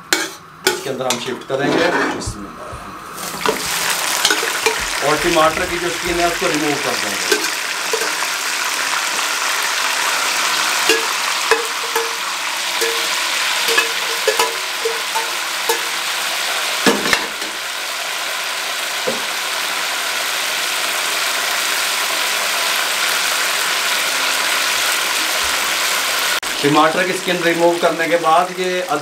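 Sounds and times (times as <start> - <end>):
metal utensil tapping a pan: 0.1 - 1.6, 3.4 - 6.5, 7.2 - 8.3, 10.8 - 16.1, 16.9 - 17.6, 19.1 - 19.3
meat sizzling in a wok: 3.1 - 29.0.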